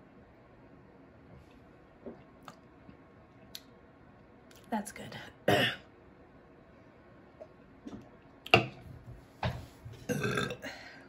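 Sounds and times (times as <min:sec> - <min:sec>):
woman burping: 0:05.5 - 0:05.9, 0:10.1 - 0:10.9.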